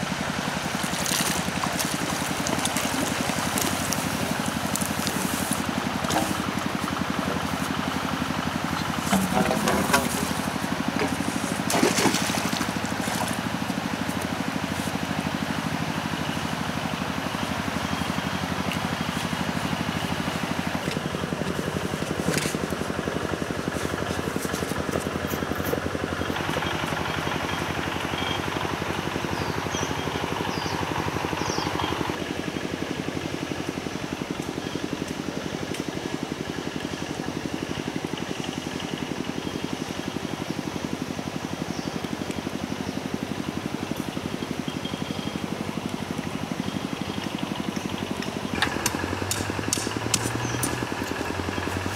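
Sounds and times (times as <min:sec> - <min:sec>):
petrol water pump running: 0:00.0 - 0:51.9
water pouring and trickling: 0:00.1 - 0:06.8.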